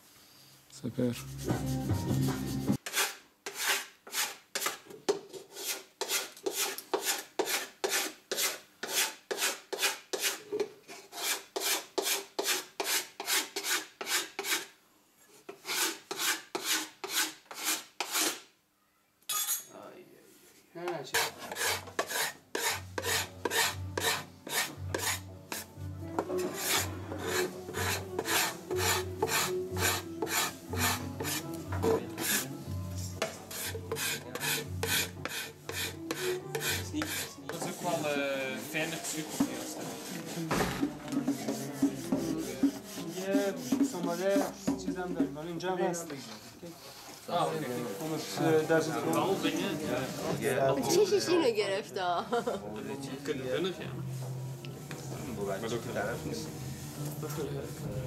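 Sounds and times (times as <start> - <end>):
hand scraping wood: 1.2 - 14.7, 15.4 - 18.4, 21.1 - 32.5, 33.2 - 40.6, 41.2 - 44.5.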